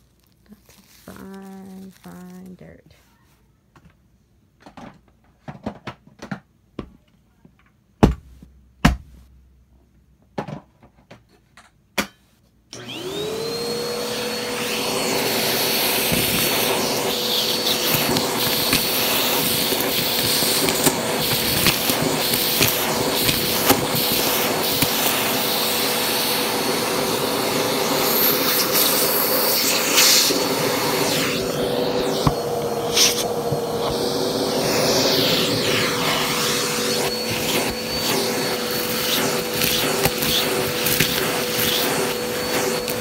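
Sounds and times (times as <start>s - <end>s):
vacuum cleaner motor whine: 12.7s - 43.0s
vacuum sucking up grit: 12.8s - 43.0s.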